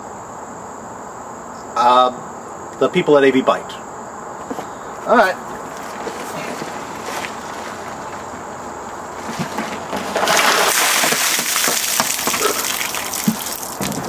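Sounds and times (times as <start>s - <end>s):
water gushing and pouring: 10.1s - 14.0s.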